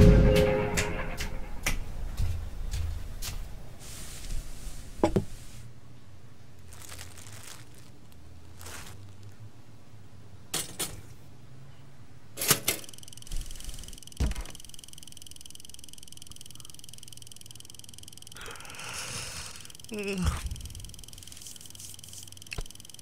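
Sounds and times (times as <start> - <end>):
glass bottle set on countertop: 5.0 - 5.3.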